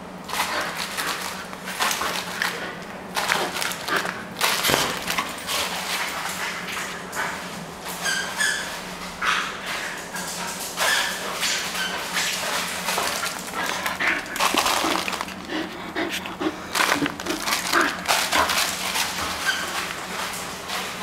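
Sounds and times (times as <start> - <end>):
dog claws clicking on tiles: 0.3 - 7.3, 10.1 - 20.6.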